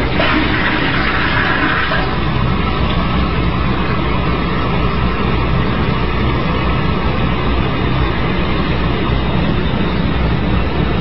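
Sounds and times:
toilet flushing: 0.0 - 2.9
tank refilling with running water: 0.0 - 3.1.

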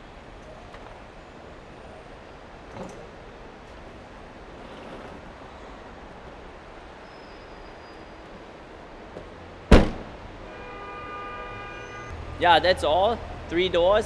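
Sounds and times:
distant traffic: 0.0 - 14.0
parking garage rumble: 7.7 - 14.0.

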